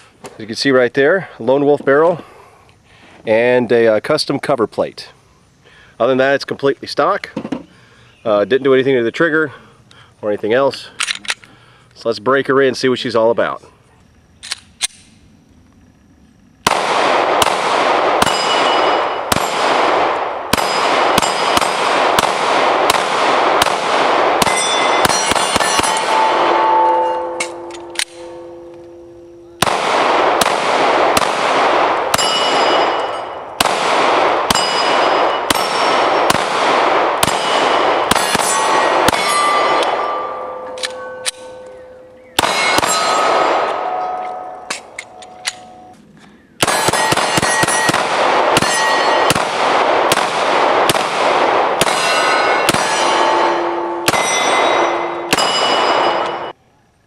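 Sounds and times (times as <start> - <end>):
pistol shots: 16.6 - 28.8, 29.6 - 45.9, 46.6 - 56.6
steel targets clanging: 24.4 - 29.6, 32.1 - 33.5, 34.5 - 36.1, 37.2 - 45.9, 46.6 - 49.4, 51.8 - 56.6.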